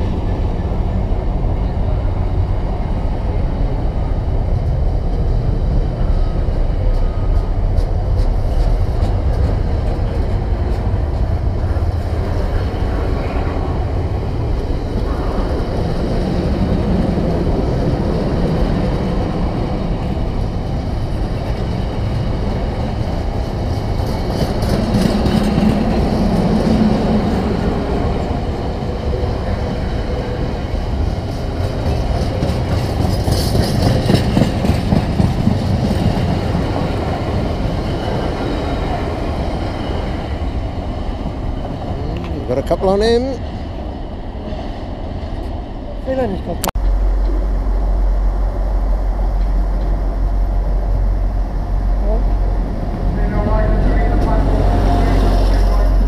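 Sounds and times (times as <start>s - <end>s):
freight train wheels rumbling on rail: 0.0s - 56.0s
wheels clicking over rail joints: 31.0s - 37.9s.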